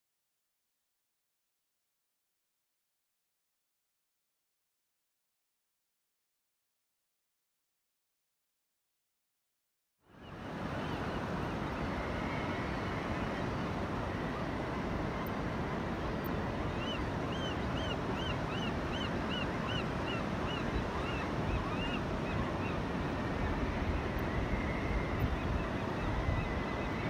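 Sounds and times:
waves washing on sand: 0:10.4 - 0:27.0
wind on microphone: 0:10.5 - 0:27.0.

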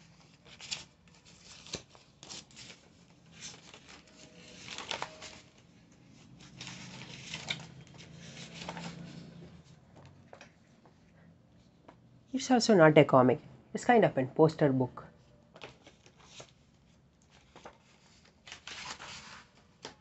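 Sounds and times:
paper pages rustling: 0:00.0 - 0:11.0, 0:15.5 - 0:20.0.

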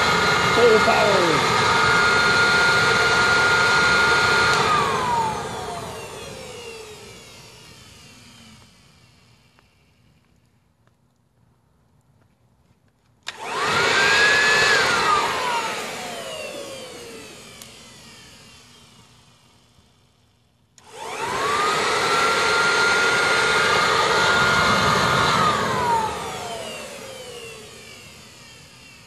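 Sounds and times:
electric blower motor whine: 0:00.0 - 0:10.5, 0:13.2 - 0:29.0.

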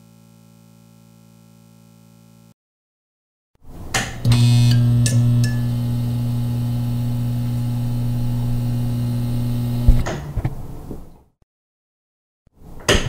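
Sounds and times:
electric light buzzing: 0:00.0 - 0:02.6, 0:04.0 - 0:10.1.

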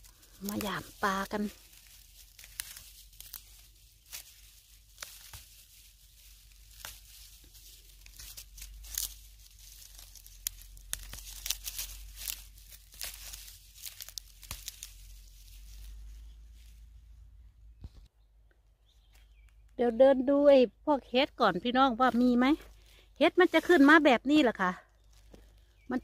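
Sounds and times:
dry fern fronds crackling and rustling: 0:00.0 - 0:18.1, 0:18.8 - 0:20.0, 0:20.9 - 0:26.0.

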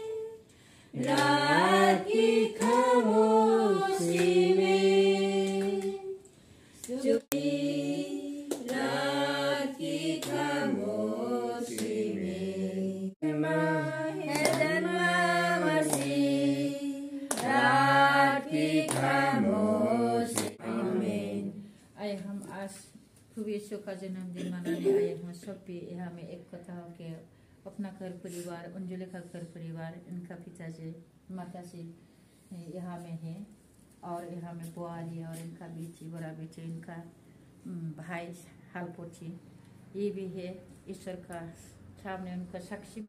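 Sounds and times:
women singing a hymn: 0:00.0 - 0:21.8.

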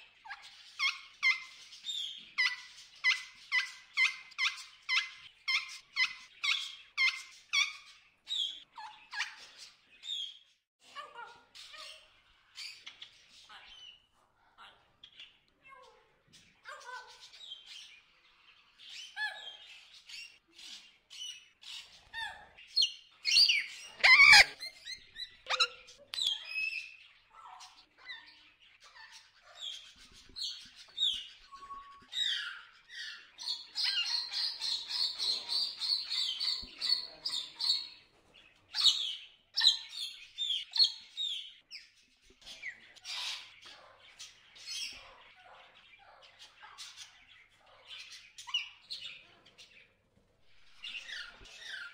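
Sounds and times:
macaws squawking: 0:23.8 - 0:24.8.

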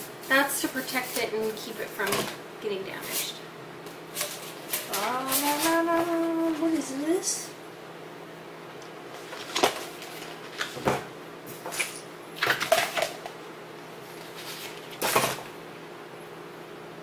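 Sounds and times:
paper rustles and scrapes: 0:14.2 - 0:14.9.

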